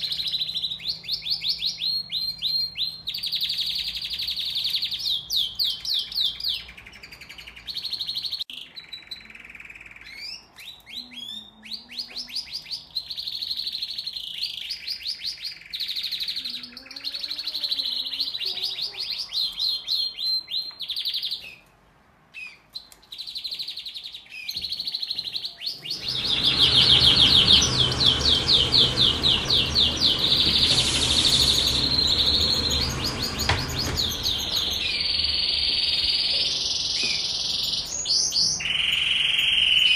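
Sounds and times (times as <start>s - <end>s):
canaries singing trills: 0.0s - 21.7s, 22.3s - 39.9s
steady rushing noise: 25.9s - 37.7s.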